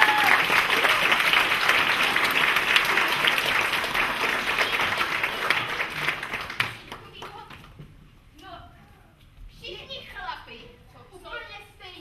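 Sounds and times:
audience clapping: 0.0s - 7.8s.

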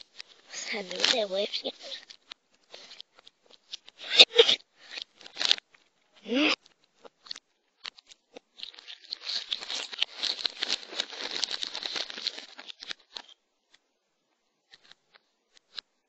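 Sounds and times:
packaging crinkling: 0.0s - 4.0s, 4.8s - 5.8s, 6.6s - 13.4s.

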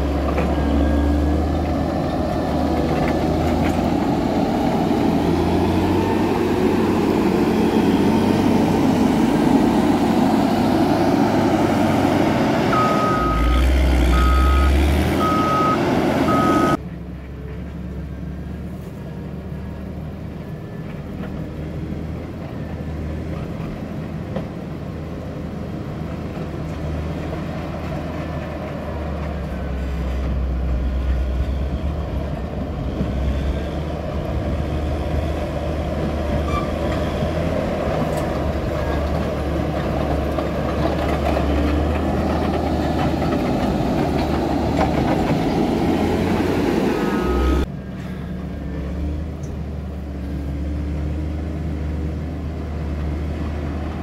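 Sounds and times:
grader diesel engine running: 0.0s - 54.0s.

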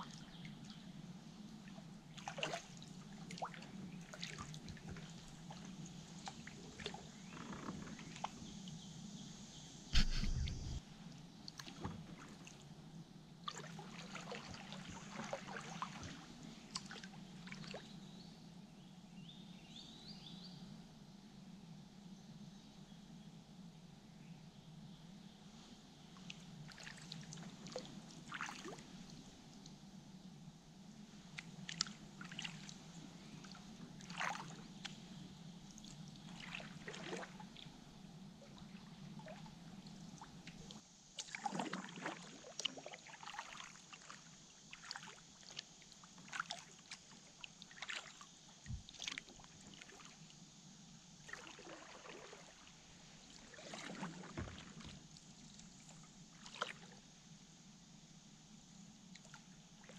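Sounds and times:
small water splashes: 1.6s - 8.3s, 13.4s - 17.9s, 26.2s - 29.1s, 31.3s - 35.0s, 35.8s - 37.7s, 38.4s - 50.3s, 51.2s - 57.0s
paddle dipping in water: 2.1s - 8.4s, 10.0s - 10.8s, 13.4s - 17.8s, 26.7s - 28.9s, 31.3s - 35.2s, 35.8s - 37.7s, 38.4s - 50.3s, 51.2s - 57.0s.

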